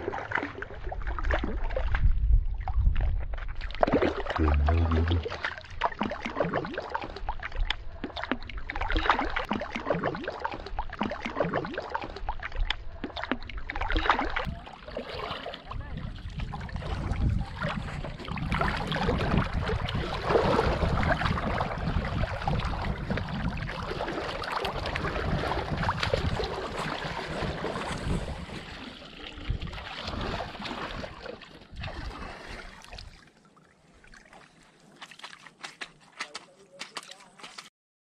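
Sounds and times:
water splashing from thrashing fish: 3.5s - 33.4s
wind buffeting microphone: 15.7s - 30.4s.

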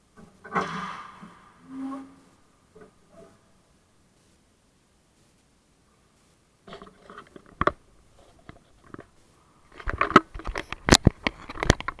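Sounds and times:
clicks and knocks on camera: 6.7s - 9.1s, 9.7s - 12.0s.

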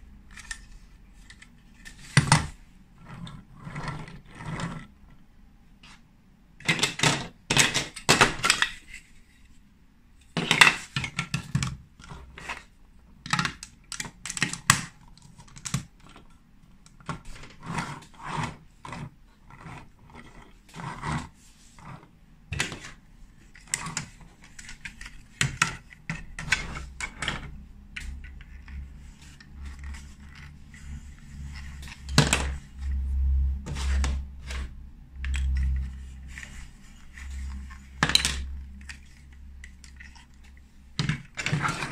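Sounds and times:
plastic bricks clicking and clattering: 6.6s - 9.0s, 10.4s - 18.1s, 22.5s - 32.6s, 33.8s - 41.9s.

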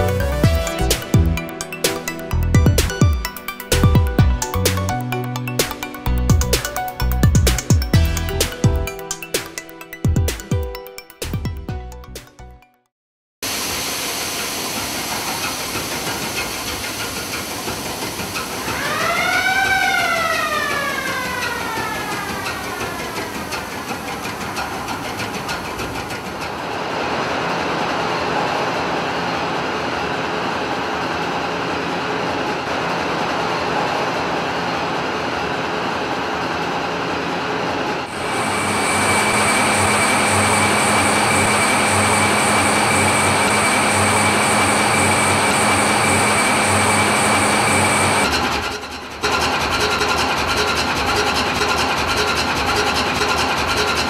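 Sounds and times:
diesel engine drone: 0.0s - 9.0s, 37.6s - 54.0s
low pulsing beat: 0.0s - 11.9s
high whine: 38.1s - 49.4s.

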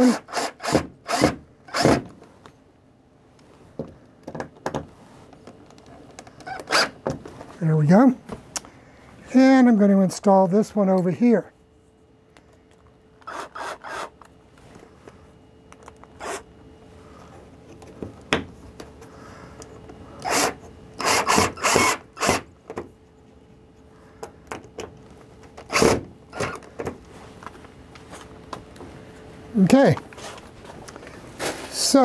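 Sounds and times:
cordless drill driving screw into wood: 0.0s - 2.1s, 6.4s - 7.0s, 13.2s - 14.1s, 20.2s - 22.5s, 25.6s - 26.6s.

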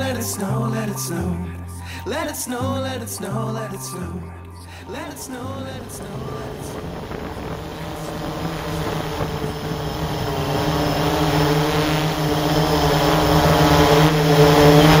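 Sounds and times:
drone propellers humming: 4.2s - 15.0s.

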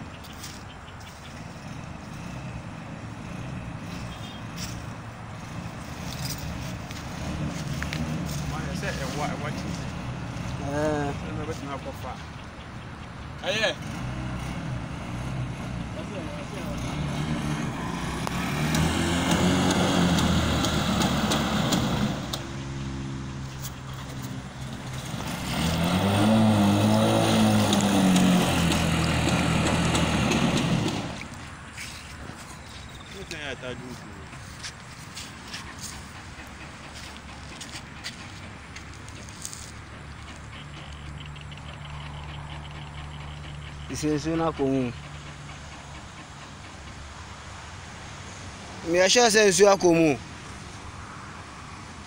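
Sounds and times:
motorbike engine revving: 0.0s - 32.4s, 35.1s - 46.9s.

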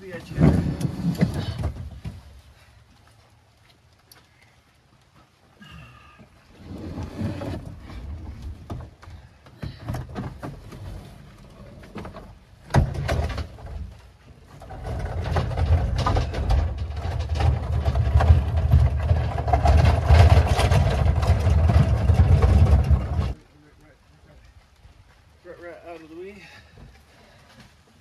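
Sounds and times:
knocks and clunks: 0.0s - 2.4s, 6.2s - 23.4s.

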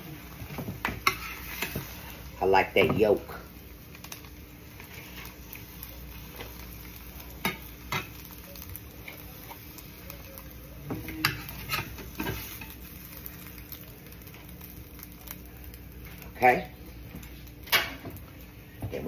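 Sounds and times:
pan sizzling faintly: 0.0s - 19.0s
metal spatula scraping skillet: 0.9s - 2.2s, 11.0s - 12.8s.

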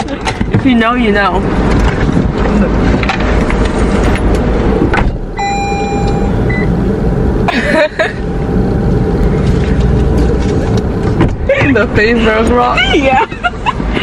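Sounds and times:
car engine rumble inside cabin: 0.0s - 14.0s
short high beeps: 5.4s - 6.8s
steady electronic tone: 5.4s - 6.8s.

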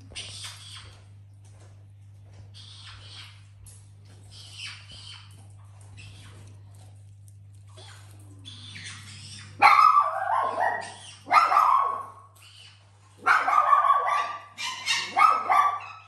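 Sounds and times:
fox barking cries: 8.5s - 12.4s, 13.2s - 16.0s.

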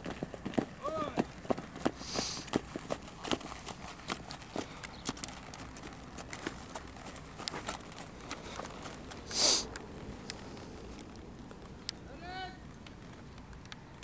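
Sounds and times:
horse snorting: 1.9s - 2.6s, 6.4s - 9.7s.

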